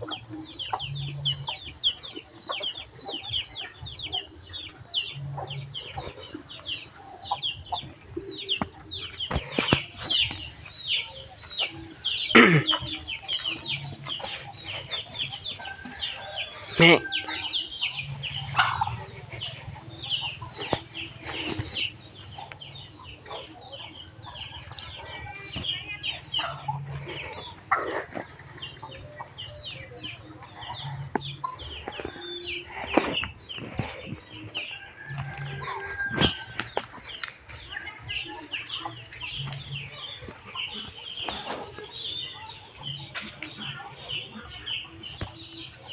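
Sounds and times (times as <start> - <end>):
chickens clucking: 0.0 - 45.9.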